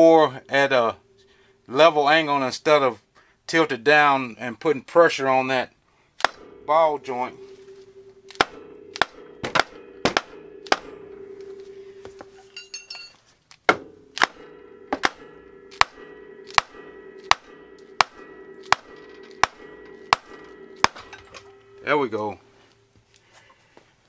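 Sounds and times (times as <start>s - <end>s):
hammer blows on steel: 0.0s - 2.2s, 6.2s - 13.1s, 13.7s - 22.9s.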